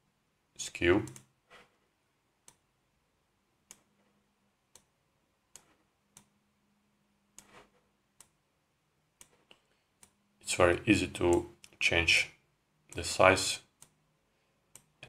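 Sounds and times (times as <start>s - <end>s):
faint computer mouse clicks: 1.0s - 1.3s.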